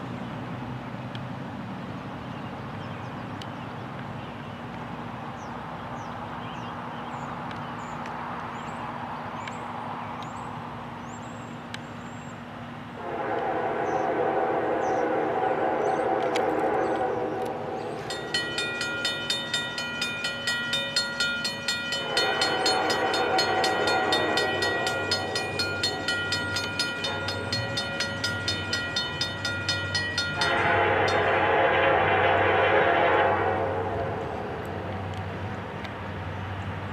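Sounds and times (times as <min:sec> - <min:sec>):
locomotive air horn: 0:13.0 - 0:18.1, 0:21.9 - 0:29.4, 0:30.2 - 0:34.7
crossing warning bell ringing: 0:17.7 - 0:34.4.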